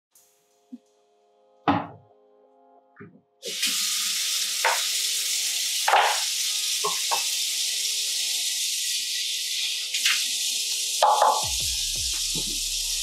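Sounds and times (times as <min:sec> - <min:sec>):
faucet running into sink: 0:03.4 - 0:11.8
dish knock: 0:11.0 - 0:11.5.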